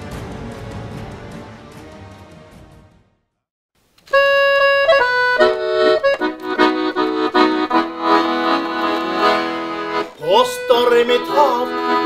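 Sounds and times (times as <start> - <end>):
accordion playing hymn tune: 4.1 - 12.0.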